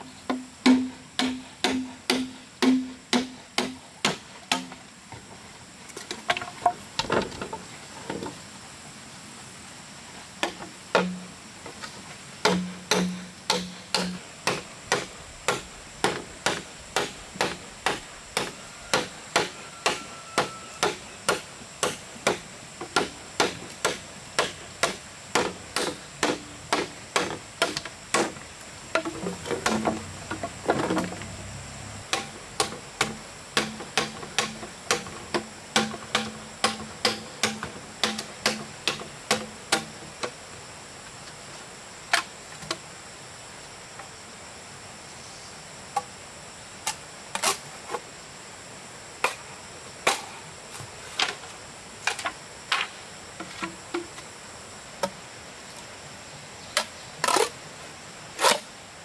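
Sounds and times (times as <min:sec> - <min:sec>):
hand tool striking wood: 0:00.3 - 0:04.8, 0:10.4 - 0:11.3, 0:12.4 - 0:31.3, 0:32.1 - 0:40.0.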